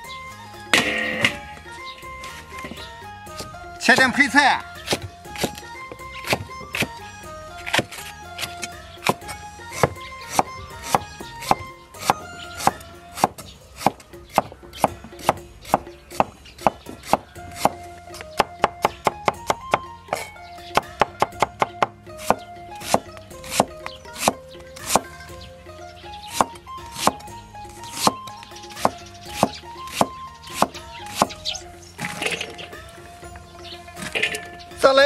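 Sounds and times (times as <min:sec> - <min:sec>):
cleaver knocking on wooden block: 0:07.7 - 0:25.1.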